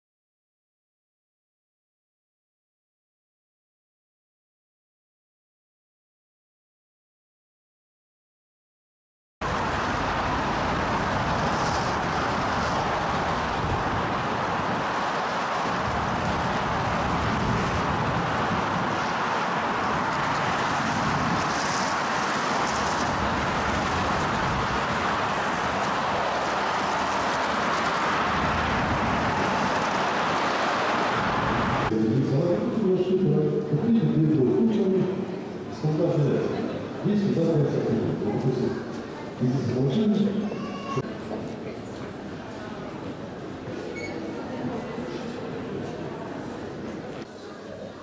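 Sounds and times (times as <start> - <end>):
moving vehicle rushing noise: 9.4 - 32.2.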